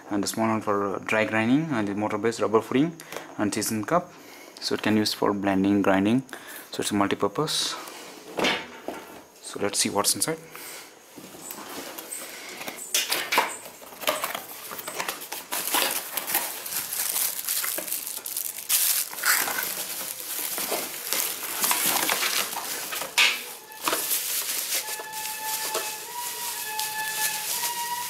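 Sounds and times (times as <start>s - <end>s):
plastic and bubble wrap crinkling: 11.2s - 28.0s
plastic parts knocking: 13.0s - 26.1s
cardboard box handled: 13.8s - 28.0s.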